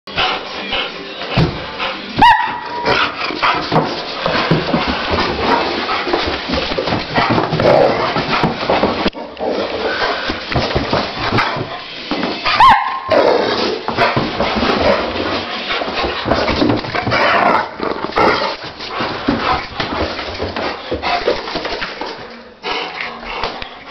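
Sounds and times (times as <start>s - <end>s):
scuffling: 1.2s - 22.3s
dog high cry: 2.2s - 2.9s, 12.5s - 13.3s.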